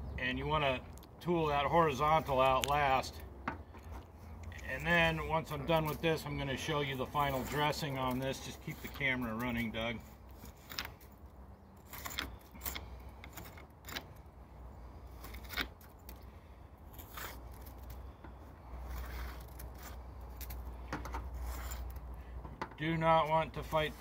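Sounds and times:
metal jointer scraping mortar: 4.8 - 11.1, 16.9 - 18.0, 18.8 - 20.5, 21.3 - 22.0.

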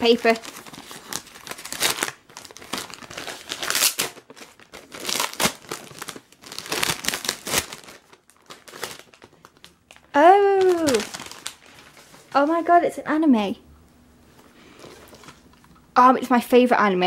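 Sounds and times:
wrapping paper tearing and crumpling: 0.0 - 12.8, 14.7 - 15.4.

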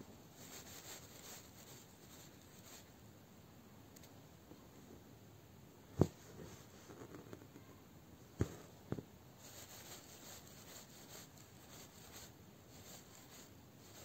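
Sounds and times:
thread rubbing through fabric: 0.4 - 2.9, 9.4 - 14.0.

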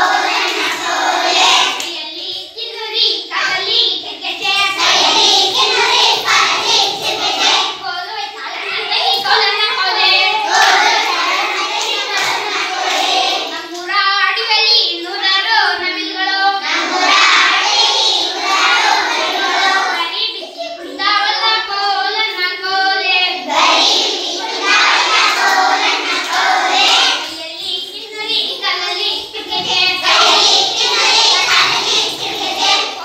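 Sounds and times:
young children singing: 0.0 - 33.0.

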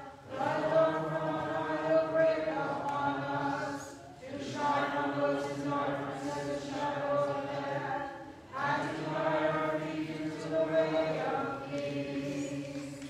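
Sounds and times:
voices singing liturgical chant: 0.0 - 13.0.

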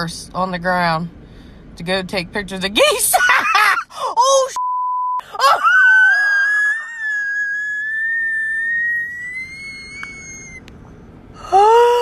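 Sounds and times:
high-pitched scream: 5.4 - 10.7.

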